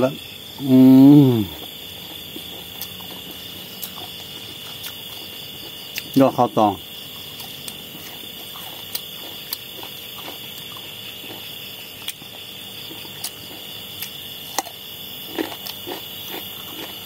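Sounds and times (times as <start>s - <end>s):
night insects chirring: 0.0s - 17.0s.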